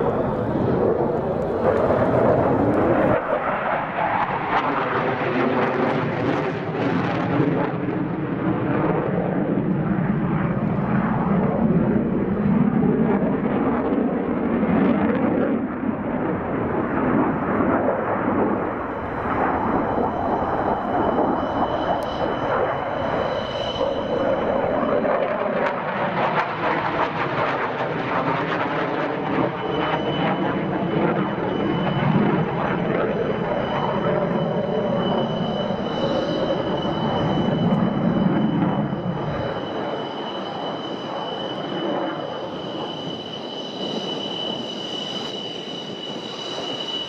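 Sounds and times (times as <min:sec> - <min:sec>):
jet engine noise: 0:00.0 - 0:47.0.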